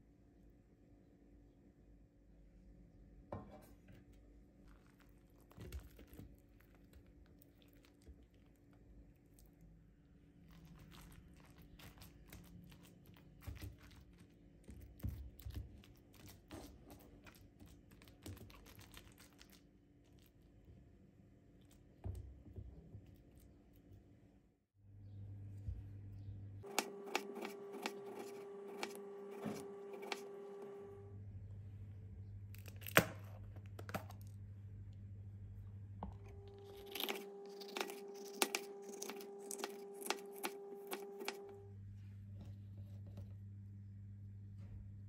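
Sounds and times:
spatula crunching bread on plate: 36.5 - 41.5.

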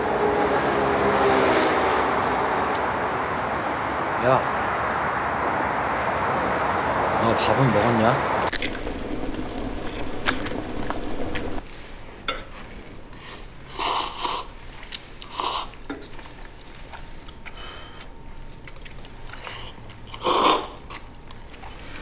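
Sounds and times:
pot simmering on gas burner: 8.5 - 11.9.

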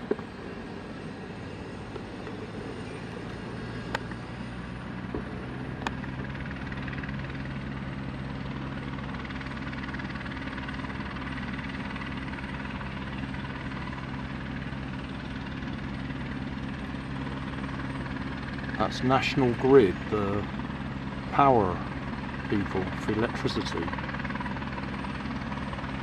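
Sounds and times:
helicopter idling: 0.0 - 26.0.

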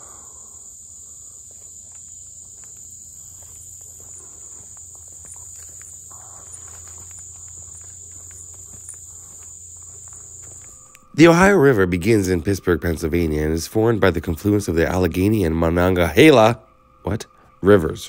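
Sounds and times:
footsteps on dirt path: 0.0 - 11.4
insects chorus: 0.0 - 18.0.

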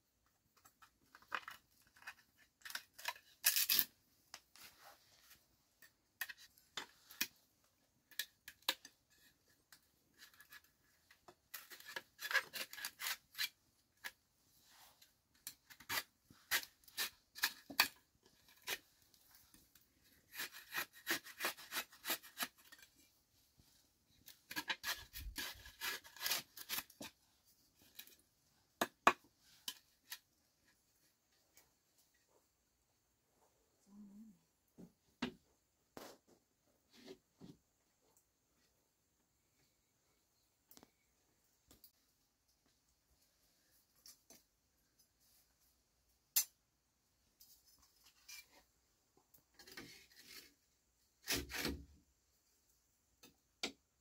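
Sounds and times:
knife scraping bamboo: 10.1 - 14.2, 15.4 - 18.8, 20.1 - 23.0, 24.5 - 27.2, 49.6 - 50.6, 51.2 - 51.8.

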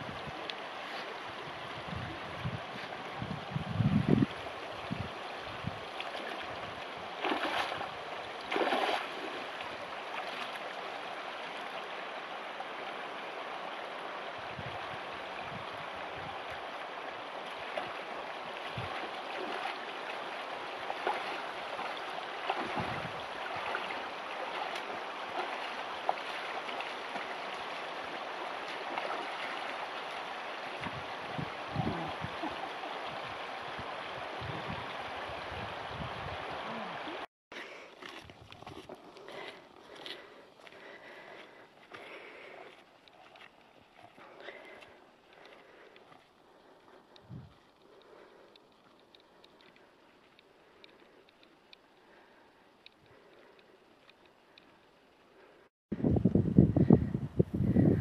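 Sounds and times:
river flowing over stones: 0.0 - 3.5, 4.1 - 40.6
splashes of wading: 4.2 - 55.0.

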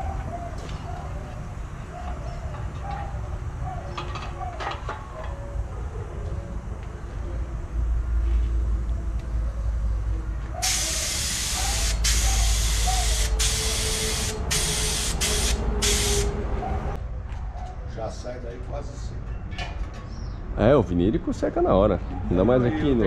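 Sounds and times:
spray paint hissing bursts: 10.6 - 16.4.

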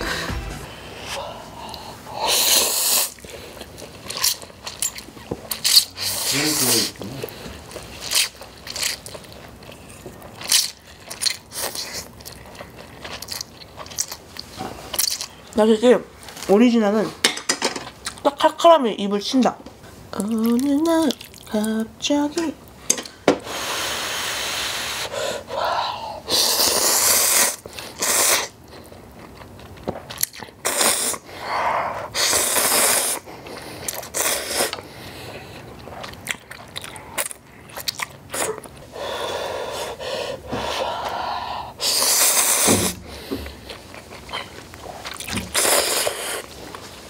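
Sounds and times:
person slurping noodles: 0.0 - 3.3, 26.3 - 28.6, 32.1 - 33.3, 33.9 - 34.8, 41.5 - 43.0, 44.9 - 46.5
chewing: 3.0 - 6.3, 7.0 - 15.6, 20.2 - 21.7, 27.6 - 30.7, 32.6 - 38.9, 43.3 - 47.0.

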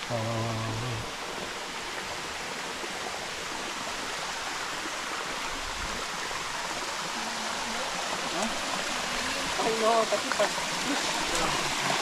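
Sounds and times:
waterfall rushing and splashing: 0.0 - 12.0.

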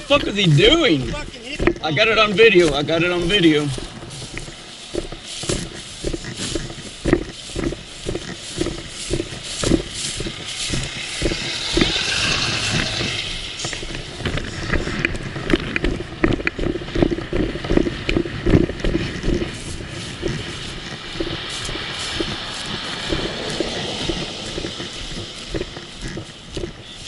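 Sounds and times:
thumps on the microphone: 0.0 - 11.9
pickup truck passing: 0.0 - 27.0
roadside traffic: 0.0 - 27.0.

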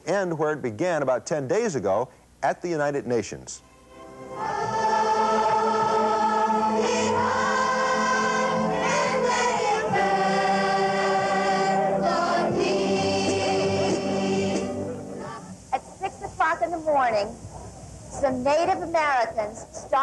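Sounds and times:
choir singing slow song: 3.8 - 15.6.

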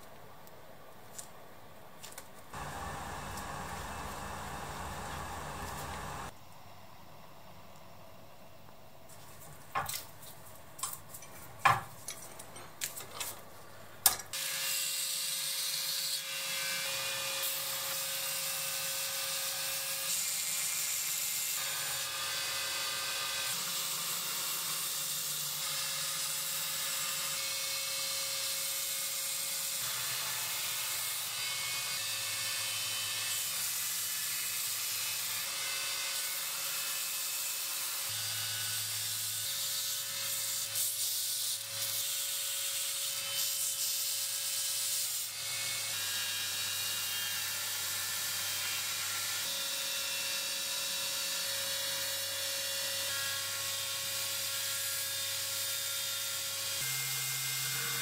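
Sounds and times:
belt grinder motor running: 2.6 - 6.3.

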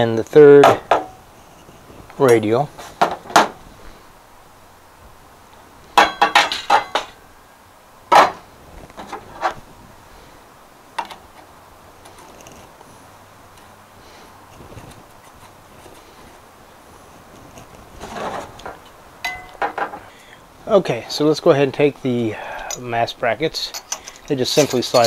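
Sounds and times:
metal parts clinking: 23.6 - 25.0.

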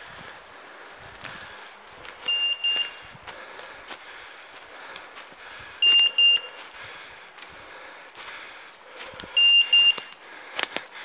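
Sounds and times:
leaves and twigs crackling underfoot: 0.0 - 11.0
electronic collar beeps: 2.2 - 3.0, 5.8 - 6.6, 9.4 - 10.1.

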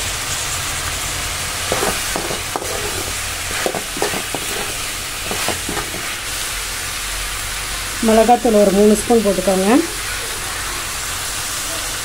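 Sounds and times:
vegetables sizzling in oil: 0.0 - 12.0
ladle scraping and knocking pan: 1.6 - 6.3.

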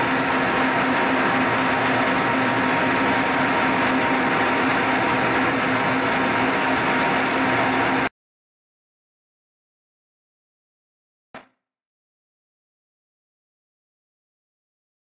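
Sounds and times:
milling machine motor humming: 0.0 - 8.1.

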